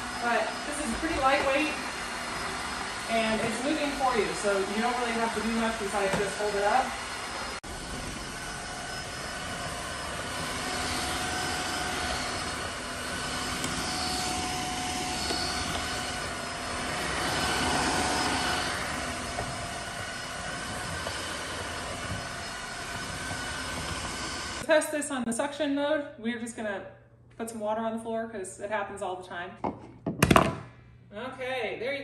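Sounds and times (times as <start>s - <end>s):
vacuum mop motor whine: 0.0s - 24.7s.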